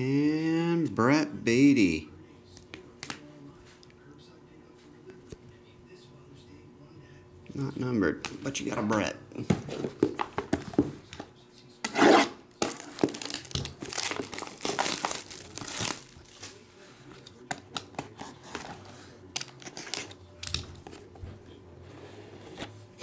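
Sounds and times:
plastic wrap tearing and crinkling: 0:12.6 - 0:16.6.

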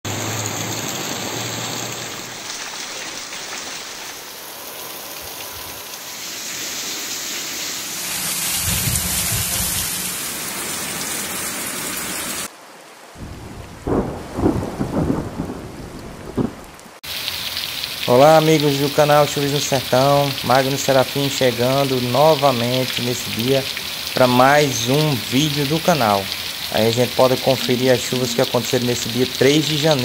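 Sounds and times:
heavy rain on street and roofs: 0:00.1 - 0:30.0
low thunder rumbles: 0:13.2 - 0:17.0.

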